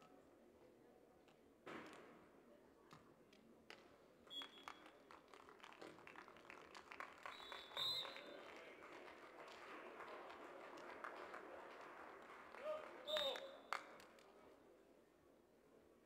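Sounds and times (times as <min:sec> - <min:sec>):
faint crowd ambience: 0:00.0 - 0:16.0
scattered claps: 0:04.4 - 0:14.3.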